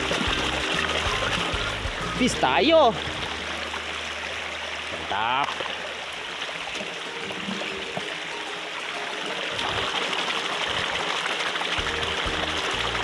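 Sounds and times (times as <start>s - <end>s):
water running: 0.0s - 13.0s.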